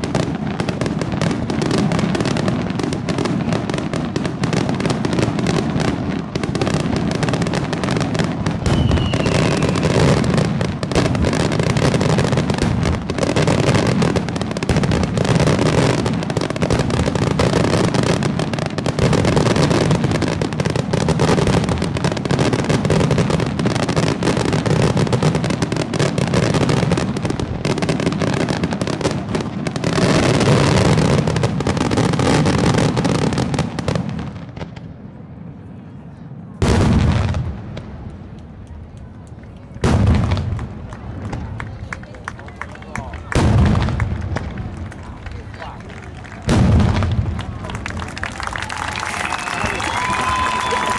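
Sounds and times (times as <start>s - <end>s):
firework shells bursting: 7.7s - 12.0s.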